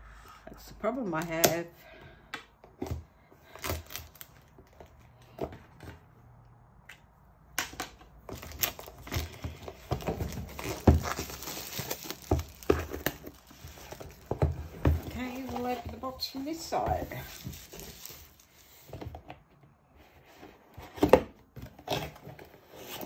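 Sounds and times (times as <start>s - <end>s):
plastic wrap crinkling and tearing: 3.5s - 4.8s, 8.3s - 18.7s
knife slitting plastic wrap: 10.5s - 13.4s.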